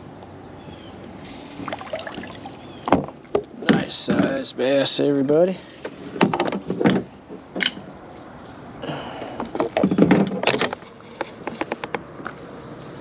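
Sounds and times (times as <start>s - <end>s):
knocks and clatter on kayak: 6.2s - 7.7s, 9.4s - 10.8s.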